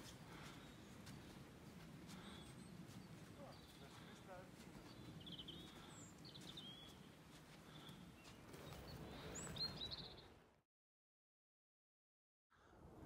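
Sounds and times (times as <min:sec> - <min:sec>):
outdoor background noise: 0:00.0 - 0:10.6
songbirds chirping: 0:00.0 - 0:10.6.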